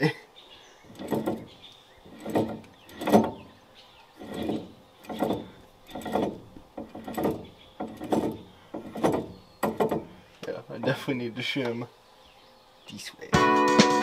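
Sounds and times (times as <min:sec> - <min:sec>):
gears meshing rolled by hand: 0:04.1 - 0:10.1.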